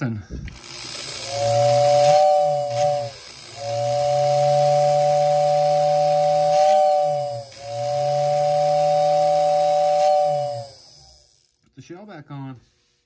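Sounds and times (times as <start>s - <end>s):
toy train whistle blowing: 1.2s - 11.2s.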